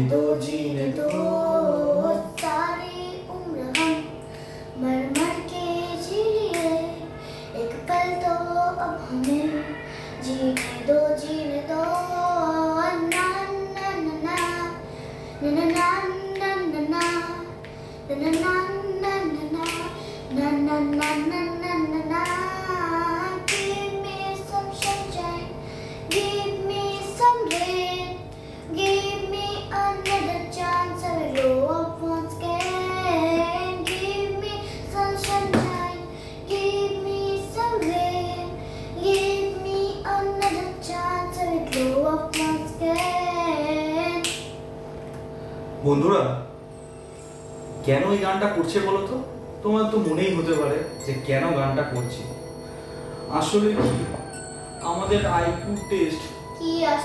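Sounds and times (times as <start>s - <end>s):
girl singing: 0.0s - 4.2s, 4.8s - 44.5s, 56.4s - 57.0s
hand claps: 1.0s - 1.4s, 2.4s - 2.7s, 3.6s - 4.1s, 5.1s - 5.5s, 6.4s - 6.9s, 9.2s - 9.5s, 10.5s - 10.9s, 13.0s - 13.4s, 14.3s - 14.7s, 15.6s - 18.8s, 19.5s - 20.0s, 20.8s - 21.4s, 22.2s - 22.6s, 23.4s - 23.9s, 24.6s - 25.2s, 26.1s - 26.4s, 27.4s - 27.8s, 30.0s - 30.4s, 31.2s - 31.6s, 32.5s - 32.9s, 33.8s - 34.1s, 35.2s - 35.9s, 37.8s - 38.1s, 39.1s - 39.4s, 40.4s - 40.7s, 41.6s - 43.2s, 44.2s - 45.2s.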